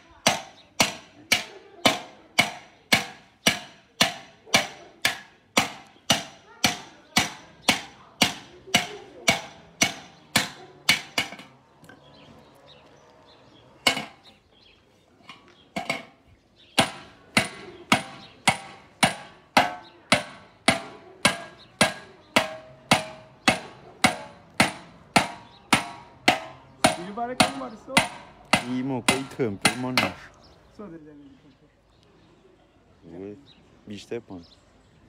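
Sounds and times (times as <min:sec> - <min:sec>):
hammer striking copper pot: 0:00.3 - 0:11.6, 0:16.8 - 0:30.2.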